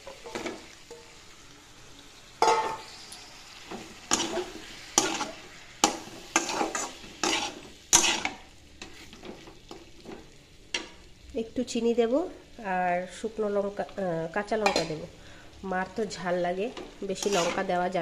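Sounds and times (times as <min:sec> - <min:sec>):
spatula scraping in a pan: 0:00.0 - 0:11.0, 0:16.8 - 0:17.8
vegetables sizzling: 0:00.0 - 0:18.0.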